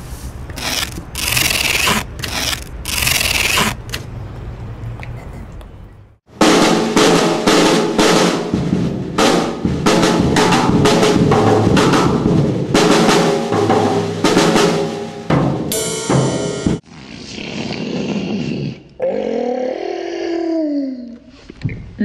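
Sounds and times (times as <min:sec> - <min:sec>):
drum kit with snare rolls: 0:06.3 - 0:16.8.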